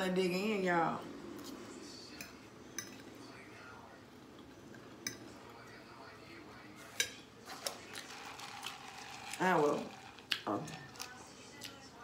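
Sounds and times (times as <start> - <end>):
fork clinking against a plate: 2.1 - 3.1, 5.0 - 5.4, 6.9 - 7.3.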